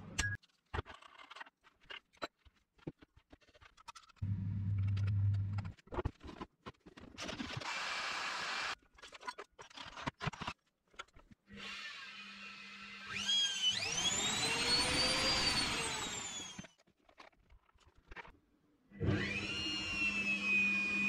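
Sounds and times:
motor spinning up with whine: 0:19.0 - 0:21.0.

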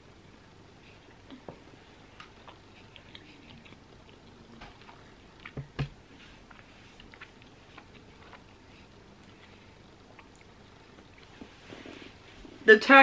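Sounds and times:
person chewing food: 0:00.8 - 0:12.0
lip smacks: 0:02.2 - 0:05.8, 0:06.5 - 0:11.3.

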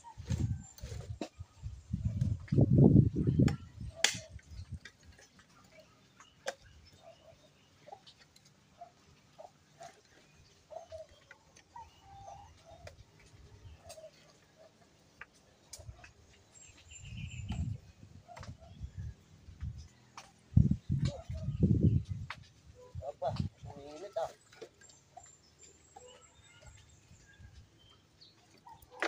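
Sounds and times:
birds calling: 0:00.0 - 0:29.0.

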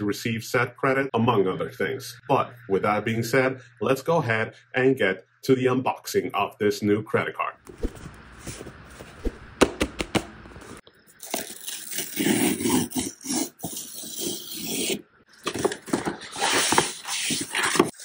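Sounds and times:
paper tearing and rustling: 0:15.4 - 0:18.0.

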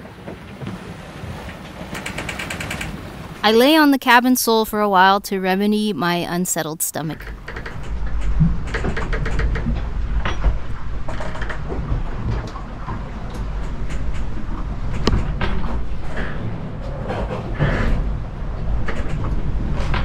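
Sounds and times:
hull moving through water: 0:00.0 - 0:05.6.

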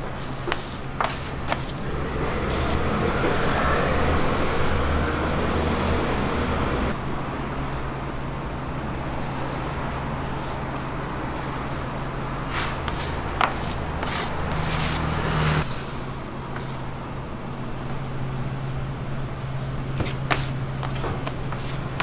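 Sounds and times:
steady low hum: 0:00.0 - 0:22.0
street traffic: 0:00.0 - 0:22.0
vehicle passing: 0:00.9 - 0:17.4.

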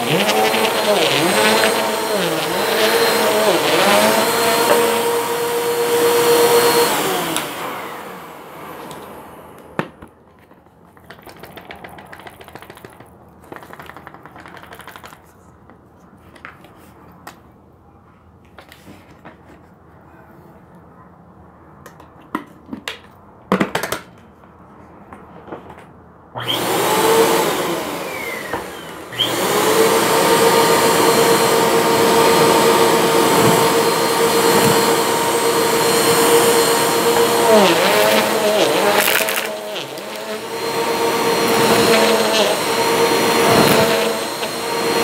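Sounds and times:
vacuum cleaner running with a whine: 0:00.0 - 0:09.8, 0:26.4 - 0:45.0.

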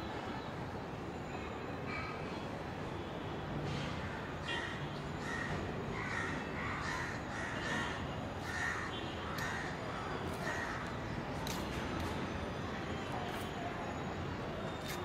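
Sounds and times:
crows cawing: 0:04.6 - 0:11.0.

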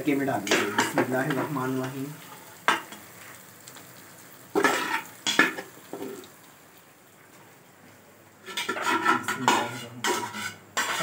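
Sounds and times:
metal spoon scraping pot: 0:08.4 - 0:11.0.

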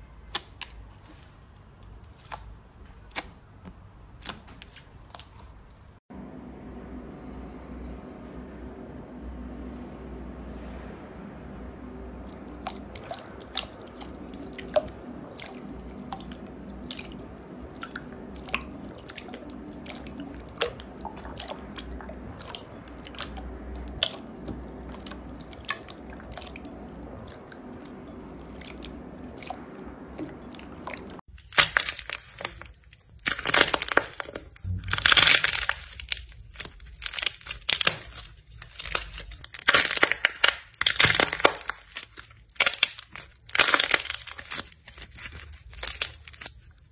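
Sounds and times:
hands squeezing sticky slime: 0:04.1 - 0:06.0, 0:12.3 - 0:46.9
crisp slime coating crackling: 0:12.2 - 0:46.9.

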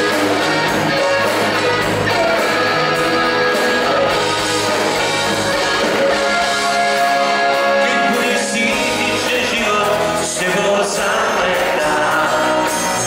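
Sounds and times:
held keyboard chords: 0:00.0 - 0:13.0
live rock band playing: 0:00.0 - 0:13.0.

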